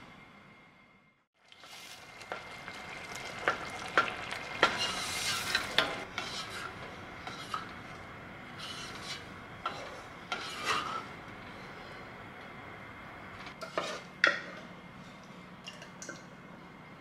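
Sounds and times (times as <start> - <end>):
wooden spatula scraping metal pot: 4.6 - 7.8, 8.6 - 11.2, 13.6 - 14.1.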